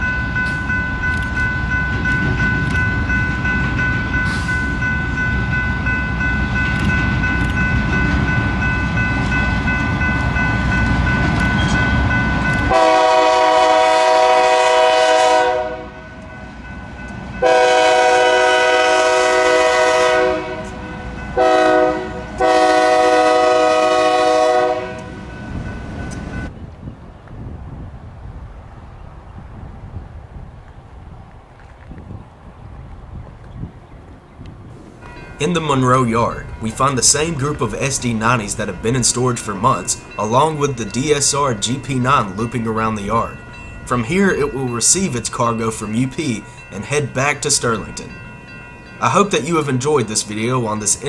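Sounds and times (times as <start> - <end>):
steady high ringing: 0.0 - 13.1, 34.9 - 51.0
diesel locomotive engine rumbling: 0.0 - 51.0
locomotive air horn blasts: 12.7 - 16.2, 17.4 - 20.8, 21.4 - 25.2.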